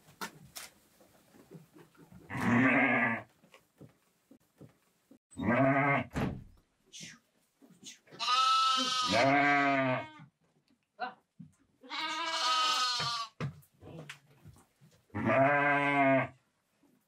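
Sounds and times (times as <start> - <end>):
sheep or goats bleating: 2.3 - 3.3, 5.4 - 6.1, 8.2 - 10.3, 11.8 - 13.4, 15.1 - 16.4.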